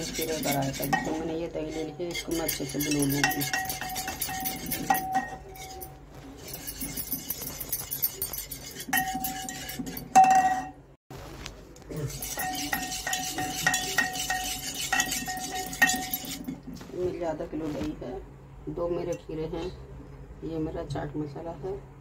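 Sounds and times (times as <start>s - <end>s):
whisk clinking in metal bowl: 0.0s - 10.8s, 12.1s - 16.6s.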